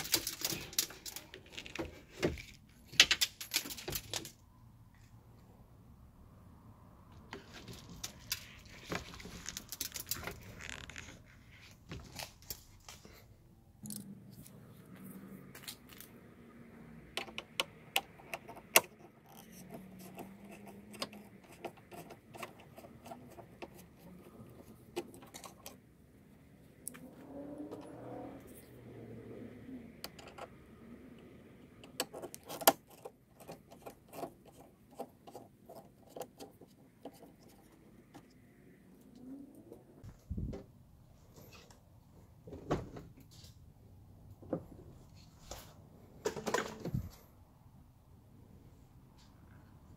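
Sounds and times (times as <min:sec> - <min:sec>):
rustling and scraping: 0:00.0 - 0:05.2, 0:07.1 - 0:13.4, 0:44.6 - 0:47.3.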